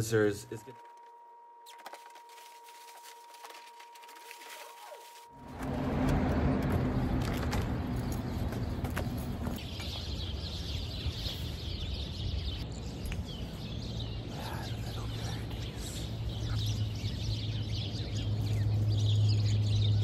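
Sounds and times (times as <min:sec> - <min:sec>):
low steady hum: 0:00.0 - 0:19.4
small birds chirping: 0:06.8 - 0:20.0.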